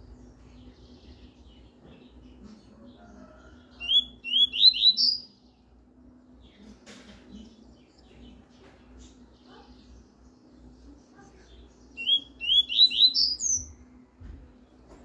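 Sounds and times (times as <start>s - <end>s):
bird singing whistled notes: 3.8s - 5.4s, 11.9s - 13.8s.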